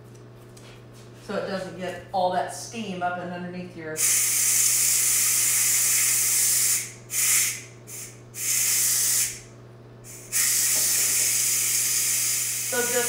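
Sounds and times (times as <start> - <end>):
pressure cooker steam hissing: 4.0 - 9.4, 10.1 - 13.0.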